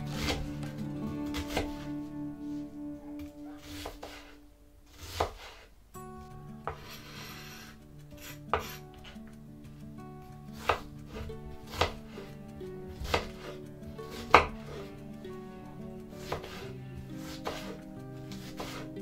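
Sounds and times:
soft background music: 0.0 - 19.0
knife chopping on wooden board: 11.7 - 12.0, 13.0 - 13.4.

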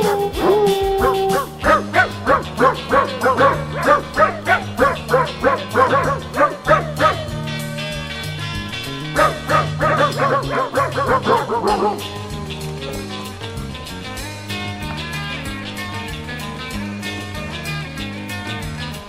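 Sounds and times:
yelping dog-like notes: 0.0 - 14.2
held low accompaniment: 0.0 - 19.0.

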